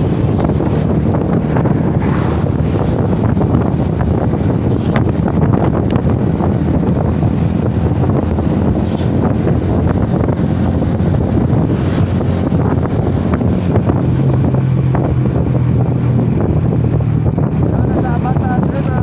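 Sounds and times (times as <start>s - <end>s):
motorcycle engine hum: 0.0s - 19.0s
wind buffeting microphone: 0.0s - 19.0s.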